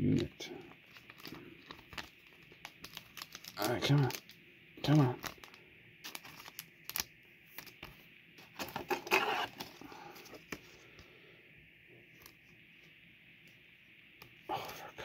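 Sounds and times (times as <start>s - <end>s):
cards sliding into plastic sleeves: 5.2s - 11.1s.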